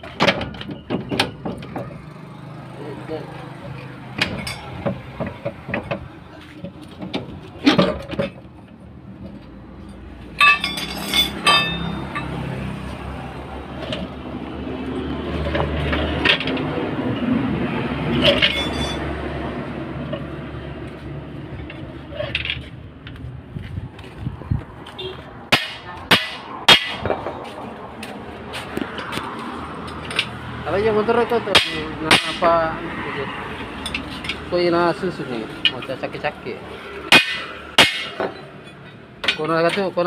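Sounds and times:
metal tools clinking and knocking: 3.6s - 8.5s, 9.2s - 12.4s, 15.4s - 16.7s, 18.1s - 19.1s, 21.5s - 23.2s, 29.8s - 30.4s, 33.6s - 34.6s, 37.2s - 40.0s.

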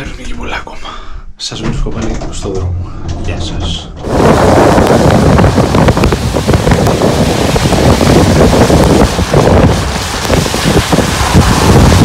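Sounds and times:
wind buffeting microphone: 3.3s - 12.0s.

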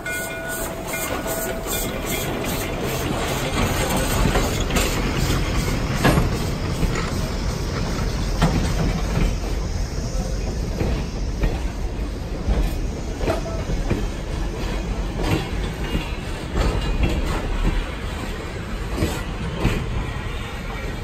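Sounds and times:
high wheel squeal: 0.0s - 7.6s
train wheels rumbling on rail: 0.0s - 21.0s.

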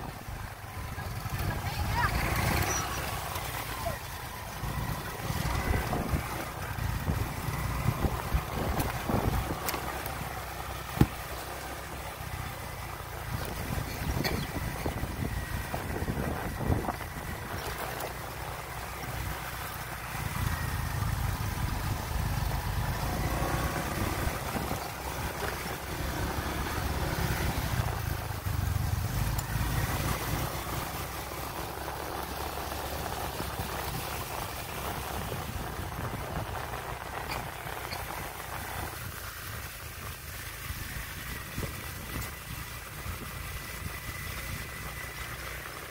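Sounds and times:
motorbike rumbling on dirt road: 0.0s - 45.9s
wind buffeting microphone: 4.6s - 10.2s, 13.1s - 18.0s, 33.0s - 39.2s, 40.9s - 45.0s.

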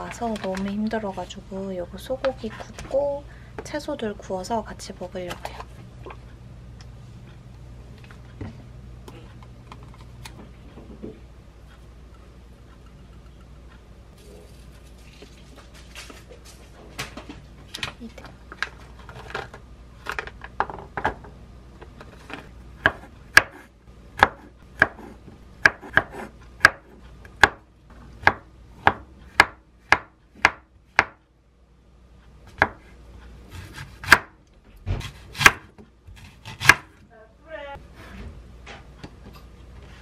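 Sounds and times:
knife chopping on wooden board: 22.8s - 27.6s, 28.2s - 31.2s, 33.5s - 37.0s.

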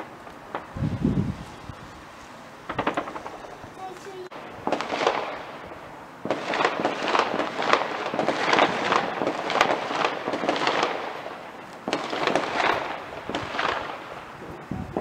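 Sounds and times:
fireworks crackling: 0.0s - 15.0s.

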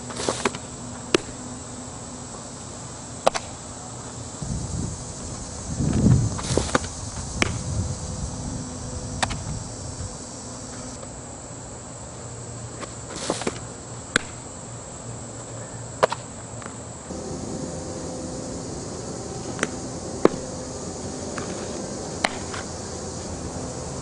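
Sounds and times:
insects buzzing: 0.0s - 24.0s
low rumble: 17.1s - 24.0s.

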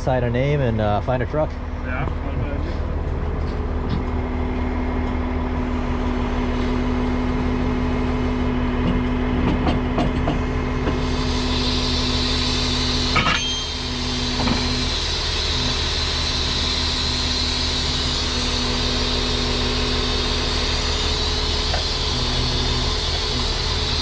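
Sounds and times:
hydraulic whine: 0.0s - 24.0s
truck engine running: 0.0s - 24.0s
hiss: 10.9s - 18.3s
metal clank: 13.1s - 13.7s.

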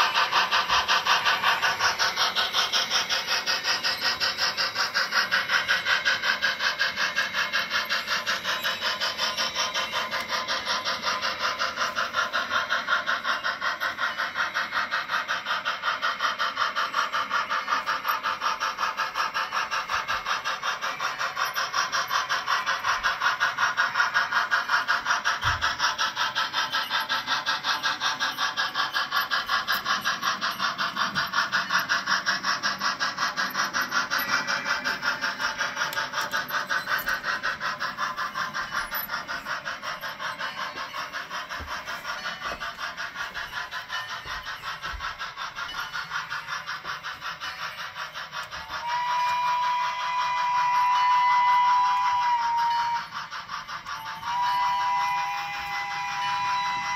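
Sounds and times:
model steam locomotive chuffing: 0.0s - 56.9s.

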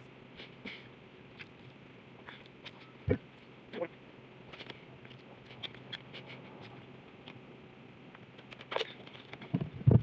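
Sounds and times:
chewing food: 1.3s - 3.5s.

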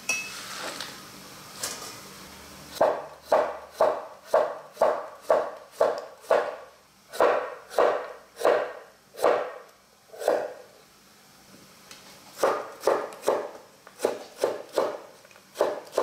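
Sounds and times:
knife chopping on cutting board: 2.8s - 10.6s, 12.4s - 16.0s.

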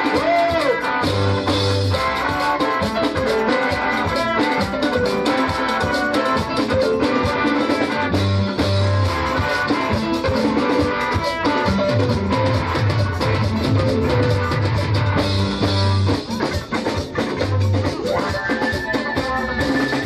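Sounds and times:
man singing into microphone: 0.0s - 1.0s
live band music through speakers: 0.0s - 20.0s.

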